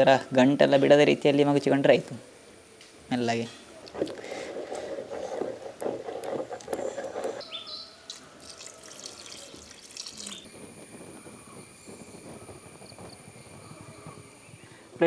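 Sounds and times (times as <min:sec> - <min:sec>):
bird chirps: 0:07.4 - 0:08.2
paste splashing into pot: 0:08.1 - 0:10.4.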